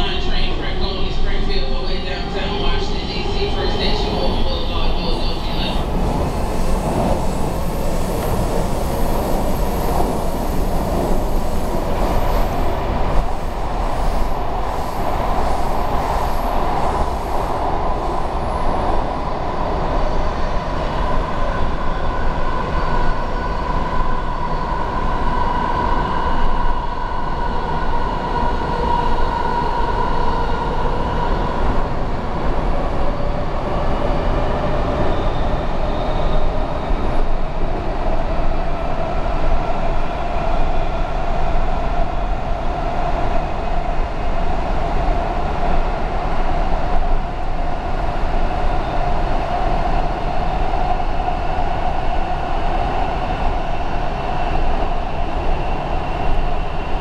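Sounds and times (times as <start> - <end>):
rumble of wheels on rail: 0.0 - 57.0
high wheel squeal: 2.9 - 12.7.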